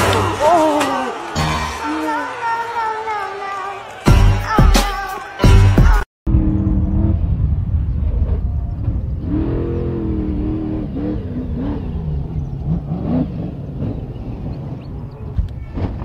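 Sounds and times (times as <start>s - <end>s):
truck engine revving: 6.3s - 16.0s.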